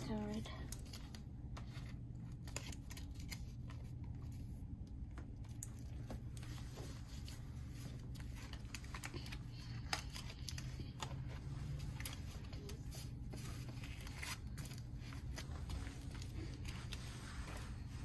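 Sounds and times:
faint steady hum: 0:00.0 - 0:18.0
trading cards and wrapping rustling: 0:00.0 - 0:18.0.

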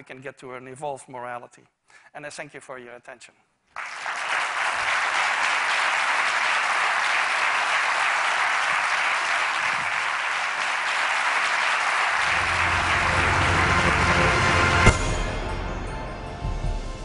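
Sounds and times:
audience applauding: 0:03.8 - 0:14.9
music: 0:12.2 - 0:17.0.

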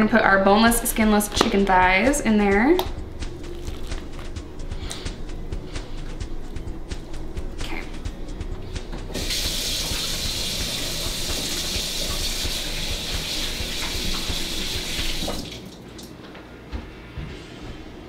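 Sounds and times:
faucet running into metal sink: 0:09.2 - 0:15.8.

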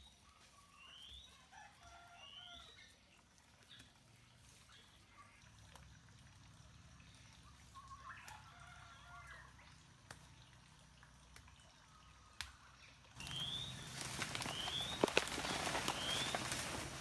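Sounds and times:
bird chirping: 0:00.0 - 0:01.4, 0:12.8 - 0:16.6.

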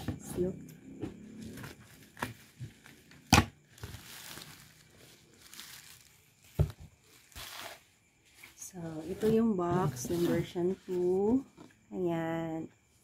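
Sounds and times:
bubble wrap crinkling: 0:03.7 - 0:07.9.

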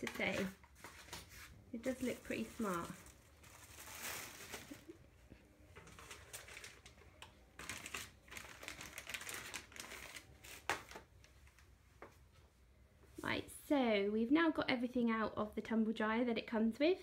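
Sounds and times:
plastic packaging crinkling: 0:00.0 - 0:05.1, 0:05.7 - 0:11.7.

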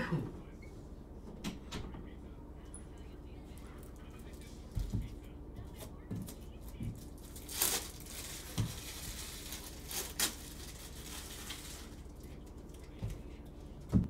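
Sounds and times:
foil wrapper crinkling and tearing: 0:07.0 - 0:12.8.

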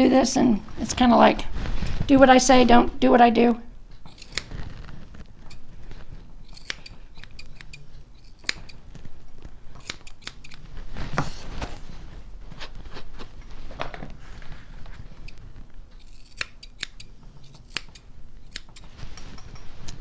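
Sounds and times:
scissors snipping hair: 0:04.1 - 0:04.6, 0:06.4 - 0:08.8, 0:09.8 - 0:10.6, 0:16.0 - 0:18.9.

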